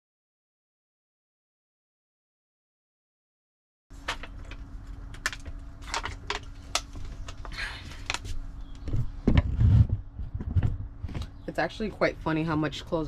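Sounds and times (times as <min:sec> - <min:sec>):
faint steady hum: 0:03.9 - 0:13.0.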